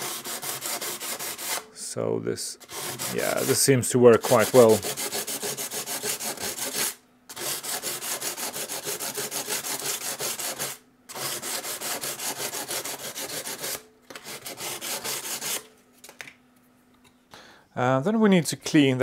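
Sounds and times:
sandpaper scratching on metal: 0.0s - 1.6s, 2.6s - 15.6s.

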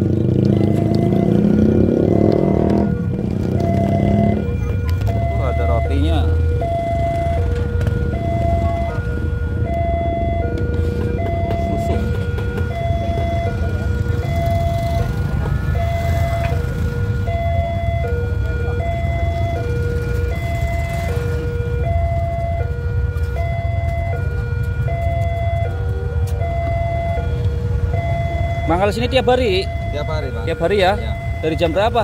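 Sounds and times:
two-tone electronic signal: 0.5s - 7.5s.

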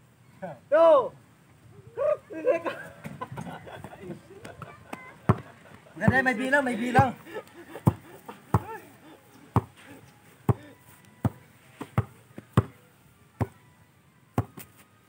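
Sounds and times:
basketball bouncing on ground: 3.8s - 6.3s, 7.8s - 8.8s, 9.5s - 9.8s, 11.2s - 12.8s, 13.4s - 13.6s, 14.3s - 14.7s.

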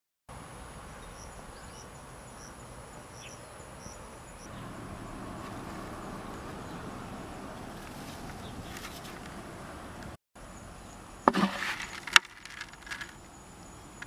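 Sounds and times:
insects trilling: 0.3s - 14.0s
rustling of dried seed heads: 11.5s - 13.3s.

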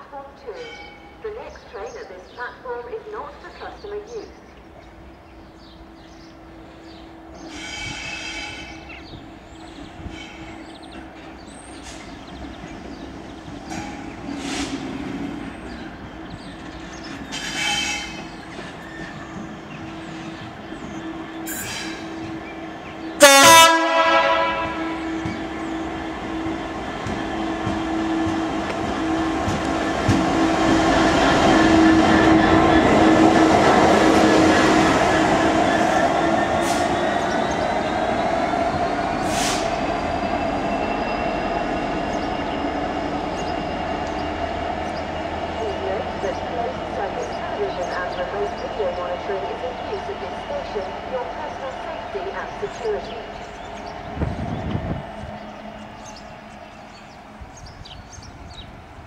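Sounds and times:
train wheel squeals: 0.6s - 1.2s, 7.4s - 12.4s, 13.5s - 23.2s, 35.8s - 45.5s
diesel locomotive engine running: 5.4s - 59.0s
two-tone train horn: 7.5s - 8.8s, 17.3s - 18.2s, 23.0s - 35.1s.

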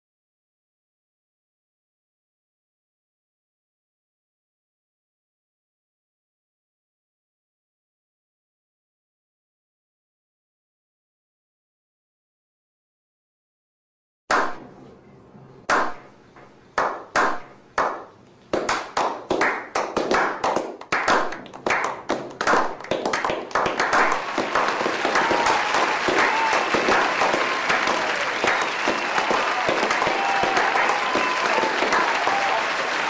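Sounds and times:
audience applause: 21.7s - 33.0s.

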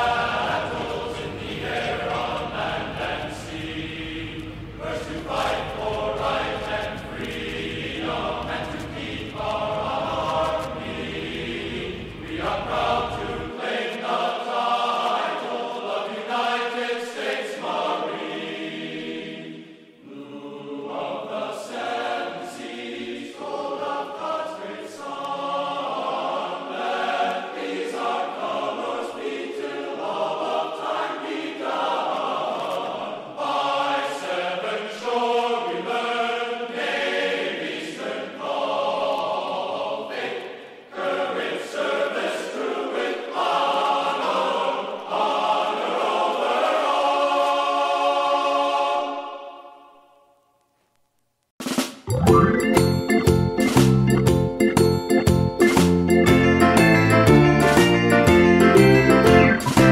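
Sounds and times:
low steady rumble: 0.0s - 13.5s
choral singing: 0.0s - 50.4s, 52.1s - 59.9s.

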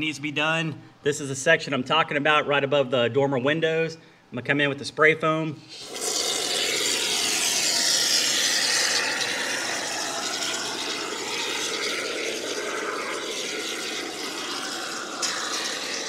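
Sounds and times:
spray foam can hissing: 5.7s - 16.0s.

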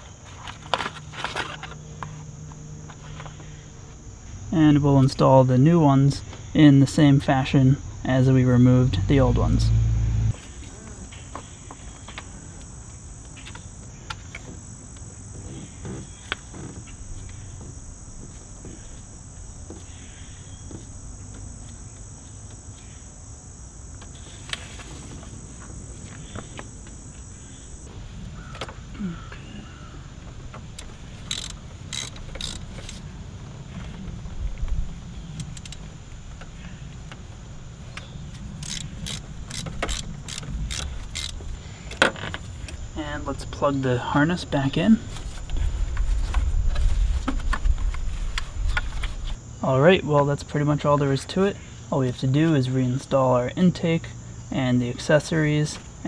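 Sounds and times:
hand ratchet clicking: 30.8s - 33.0s, 38.6s - 41.4s.

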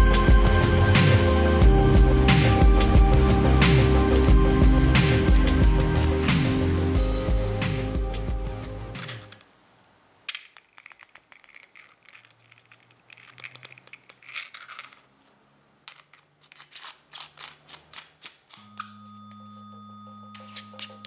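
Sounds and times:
low music tone: 0.0s - 9.4s
soft scraping and handling: 10.8s - 17.8s.

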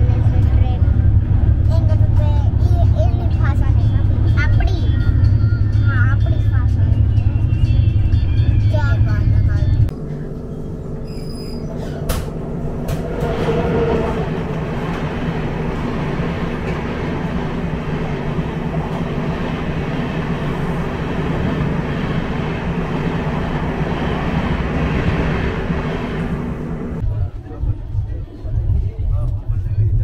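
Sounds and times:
train rumbling and rattling: 0.0s - 30.0s.

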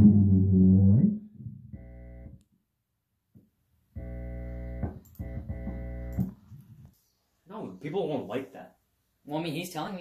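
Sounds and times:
electronic instrument notes: 0.0s - 2.4s.

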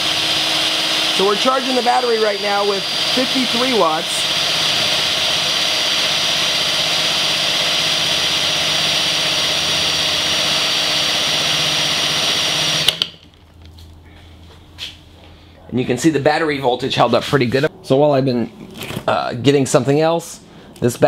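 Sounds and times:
motor whine: 0.0s - 13.0s.

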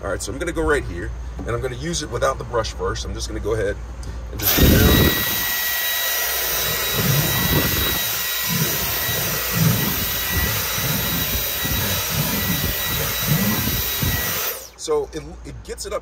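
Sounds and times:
vacuum tool rumbling on carpet: 4.4s - 5.7s, 6.3s - 14.7s
vacuum cleaner whining: 4.4s - 14.8s.

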